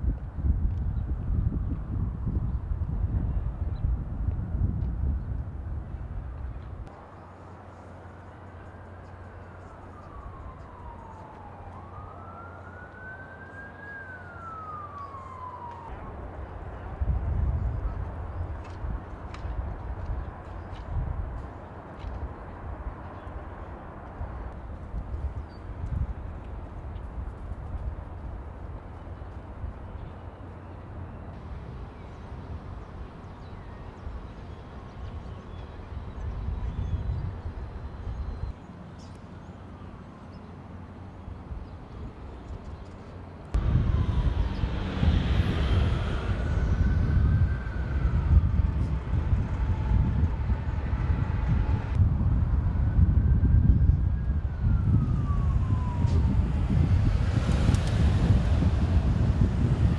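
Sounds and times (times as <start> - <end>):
wind rumbling on microphone: 0.0 - 39.2, 41.2 - 59.9
distant traffic: 5.3 - 59.9
emergency siren wailing: 7.7 - 18.5, 43.5 - 59.9
loud low rumble: 43.6 - 59.9.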